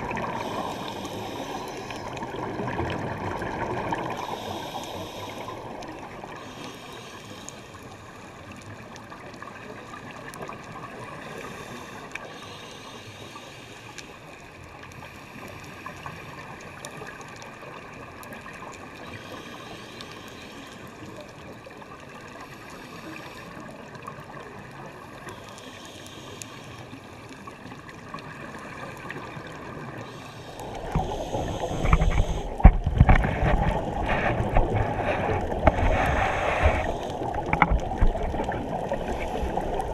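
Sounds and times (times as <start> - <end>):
gurgling regulator exhaust bubbles: 0.0 - 4.6, 29.0 - 39.9
low hiss of water: 0.0 - 39.9.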